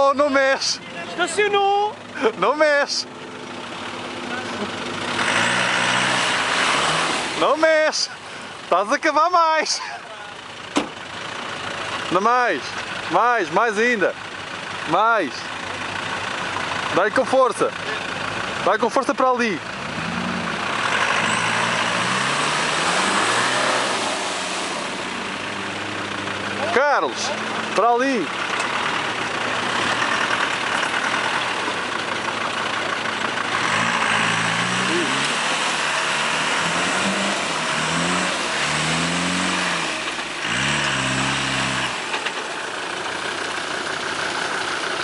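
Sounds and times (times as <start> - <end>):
tyres churning through mud: 0.0 - 14.2, 14.8 - 45.0
engine revving hard: 5.0 - 7.9, 19.8 - 26.8, 28.8 - 31.7, 33.4 - 42.4.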